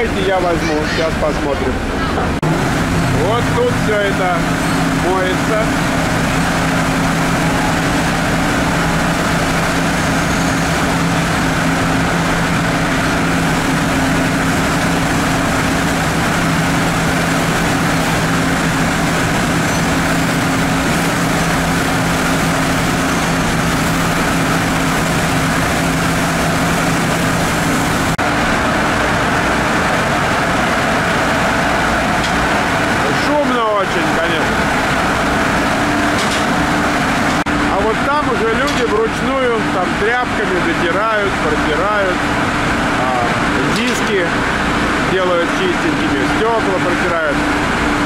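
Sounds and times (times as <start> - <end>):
car wash machinery hum: 0.0 - 48.0.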